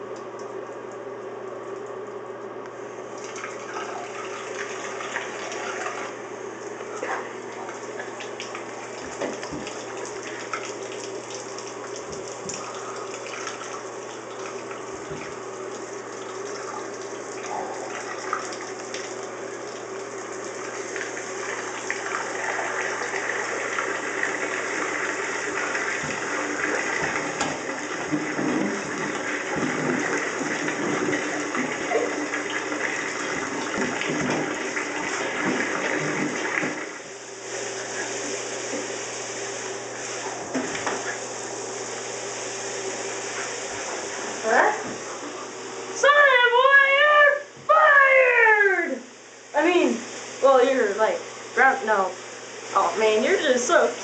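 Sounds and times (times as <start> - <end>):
water running from bathtub tap: 3.0 - 54.0.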